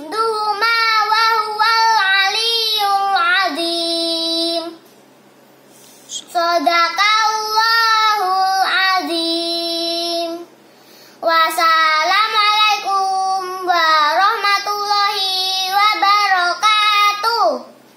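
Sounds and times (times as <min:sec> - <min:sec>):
boy chanting melodically: 0:06.1 - 0:10.5, 0:11.2 - 0:17.8.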